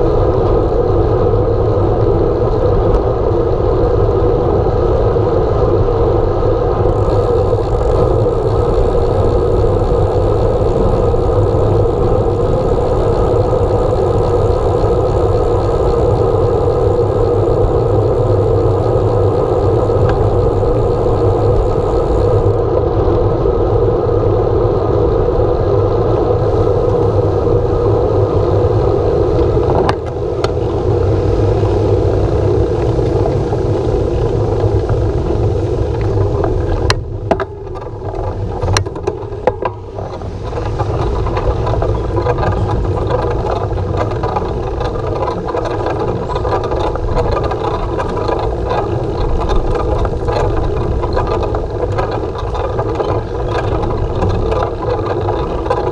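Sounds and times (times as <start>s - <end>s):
bicycle tyres on road: 0.0s - 55.9s
wind noise on microphone: 0.0s - 55.9s
sharp clicks: 6.9s - 22.5s.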